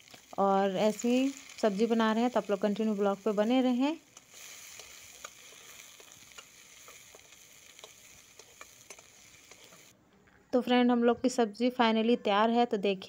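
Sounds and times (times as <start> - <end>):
onions sizzling in oil: 0.0 - 9.9.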